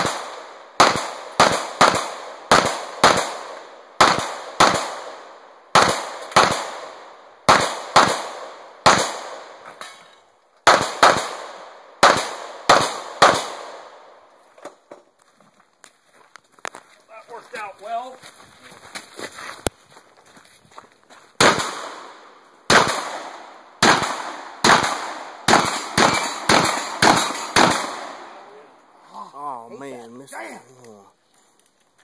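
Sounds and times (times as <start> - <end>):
gunshots with ringing echo: 0.0 - 9.6, 10.6 - 14.0, 21.4 - 28.5.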